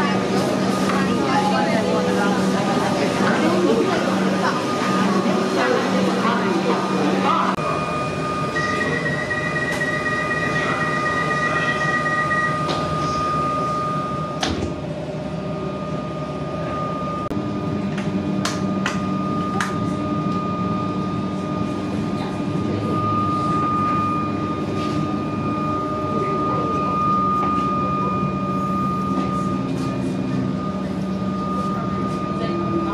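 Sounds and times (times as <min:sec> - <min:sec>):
steady whine: 0:00.0 - 0:32.9
door-closing warning beeps: 0:07.9 - 0:14.7.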